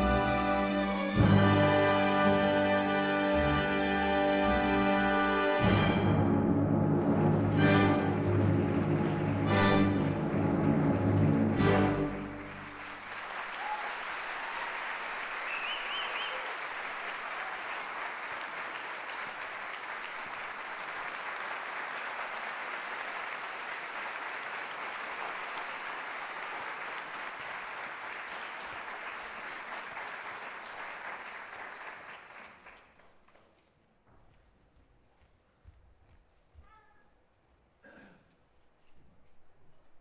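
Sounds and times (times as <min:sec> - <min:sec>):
audience applauding: 0:06.4 - 0:33.7.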